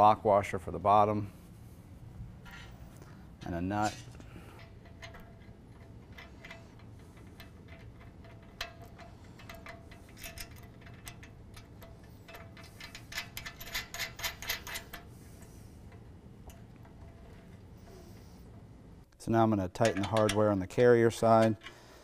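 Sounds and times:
metallic clicks of nut on bolt: 4.6 - 15.1, 19.8 - 21.8.

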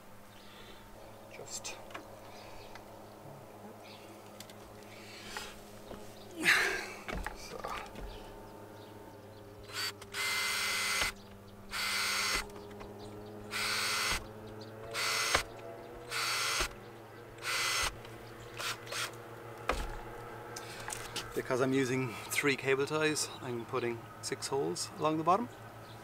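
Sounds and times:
cordless drill drilling plastic: 9.7 - 12.5, 13.5 - 14.2, 14.9 - 15.5, 16.1 - 16.7, 17.4 - 18.0, 18.6 - 19.2.

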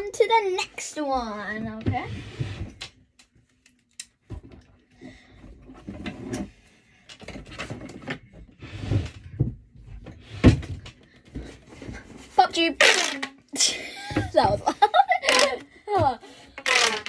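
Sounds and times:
objects rummaged and handled: 14.1 - 17.0.

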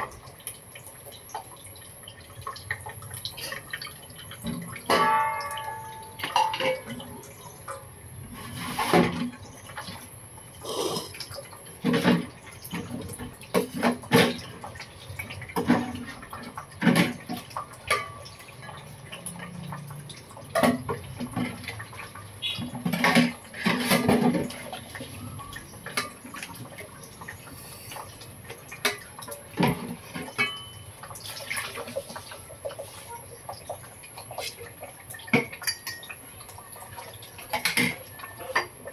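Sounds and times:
ringing metal clank: 4.9 - 6.8.

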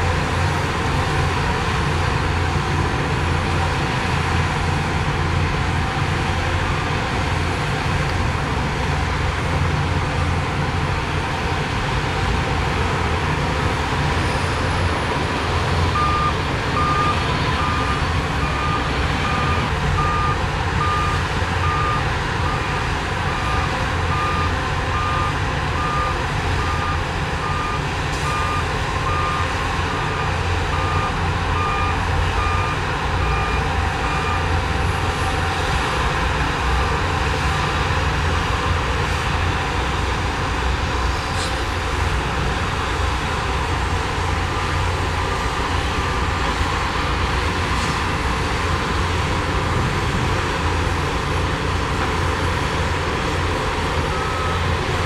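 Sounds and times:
diesel engine running under load: 0.0 - 55.0
reversing alarm beeping: 15.8 - 34.6, 54.0 - 54.7.

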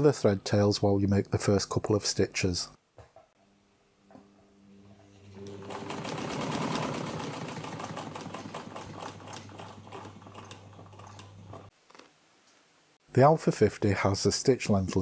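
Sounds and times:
sewing machine motor hum: 4.1 - 11.7.

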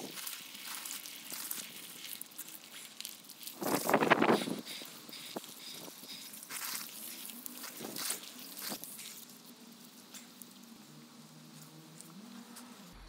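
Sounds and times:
hose water splashing on body: 0.0 - 9.5.

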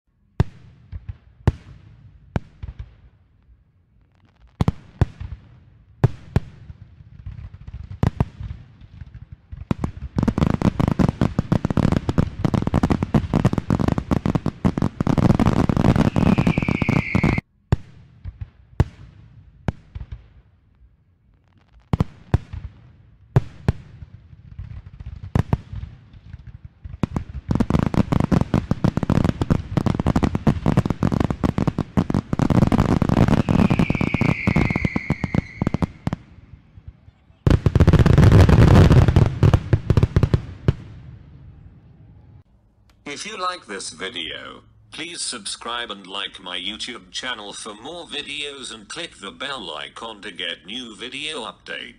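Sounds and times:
fireworks crackling: 0.4 - 41.2, 43.0 - 51.9
firework shells bursting with bangs: 4.2 - 20.5, 21.9 - 41.0
firework whistle: 15.8 - 17.4, 33.2 - 36.2.

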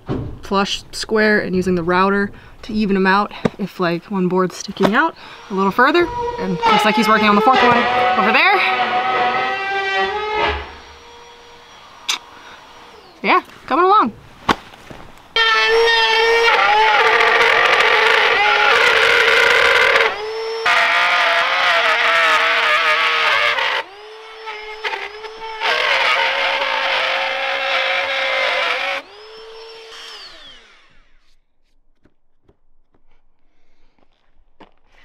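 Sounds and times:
router motor whining: 4.7 - 14.0, 15.3 - 31.4.

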